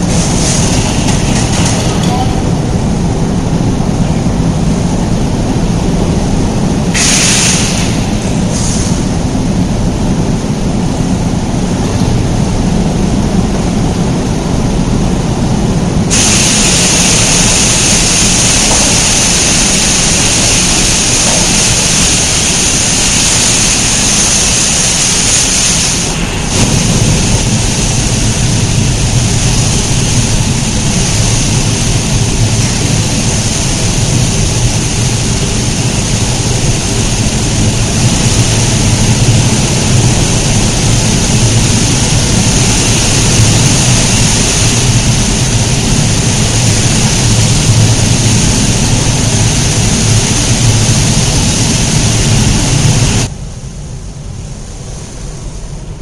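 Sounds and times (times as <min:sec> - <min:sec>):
pressure washer spraying: 0:00.0 - 0:02.2, 0:06.9 - 0:09.0, 0:16.1 - 0:53.3
low machinery rumble: 0:00.0 - 0:56.0.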